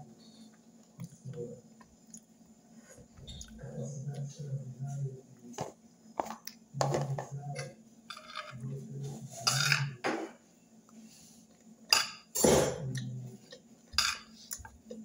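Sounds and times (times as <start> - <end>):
fork scraping and clinking bowl: 9.4 - 10.0, 13.9 - 14.3.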